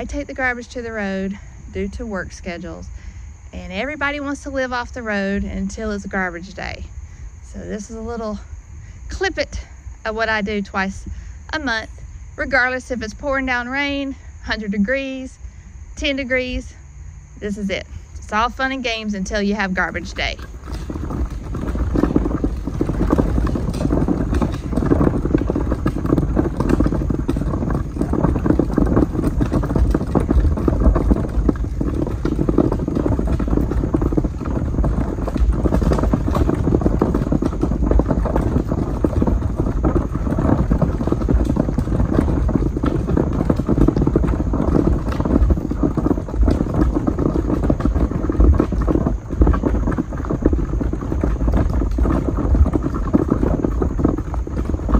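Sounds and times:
trash can wheels rattling on gravel: 0.0s - 2.9s, 17.5s - 54.9s
footsteps crunching on gravel: 19.8s - 54.9s.

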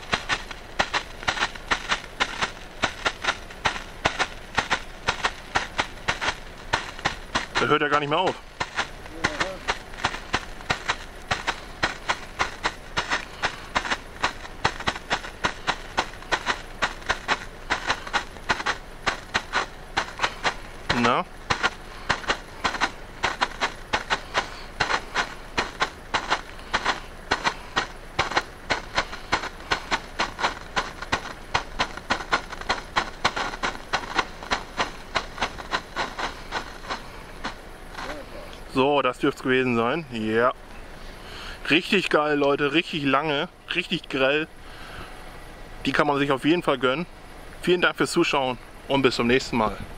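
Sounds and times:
flare burning and popping: 0.0s - 38.8s.

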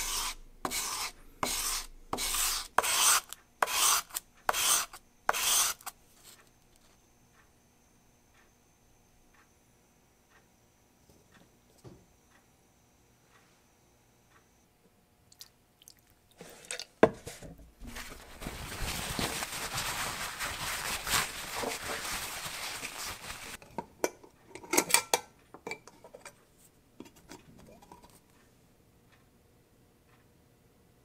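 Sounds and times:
cloth rag rubbing briskly: 18.0s - 23.6s.

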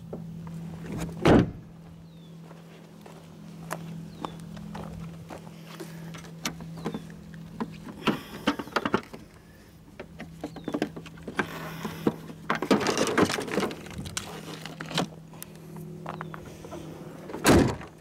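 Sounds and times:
steady low hum: 0.0s - 18.0s
footsteps crunching on gravel: 1.8s - 7.9s, 13.5s - 16.6s.

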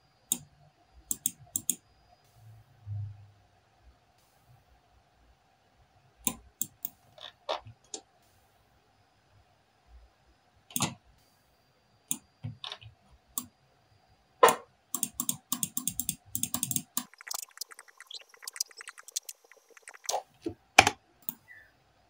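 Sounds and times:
faint steady tone: 0.0s - 22.0s
keyboard and mouse clicks: 1.1s - 1.8s, 6.3s - 8.0s, 10.7s - 11.0s, 14.4s - 21.5s.

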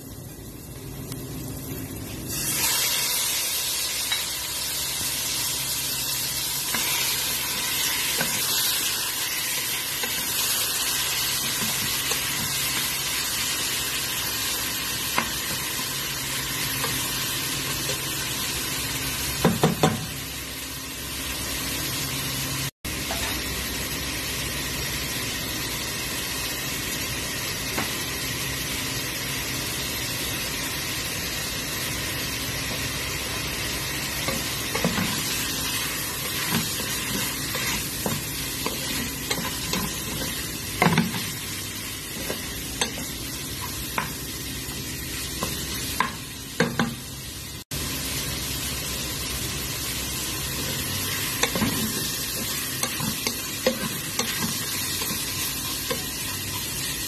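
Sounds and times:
chicken sizzling in hot oil: 0.0s - 57.0s
spatula knocking on pan: 19.4s - 20.1s
spatula stirring: 34.2s - 41.4s.

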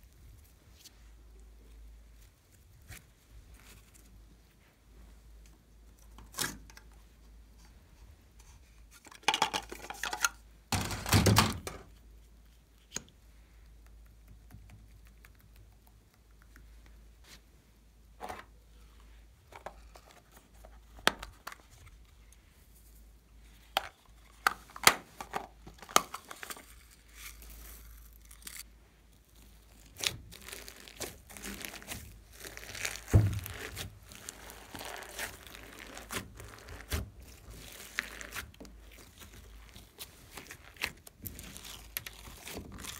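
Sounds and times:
plastic objects clicking and knocking: 9.0s - 11.9s, 23.8s - 26.6s
slime squeezed crinkling: 29.2s - 42.9s.

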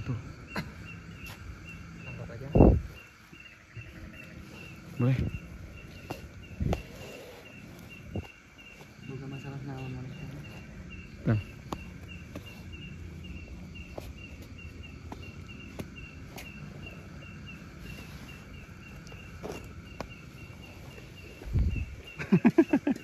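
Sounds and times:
insect chirping: 0.0s - 23.0s.

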